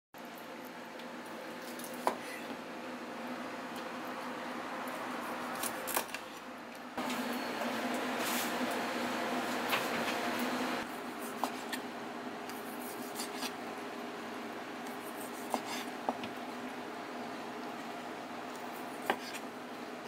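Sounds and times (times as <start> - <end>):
background kitchen noise: 0.2 - 20.0
knife slicing: 14.8 - 15.9.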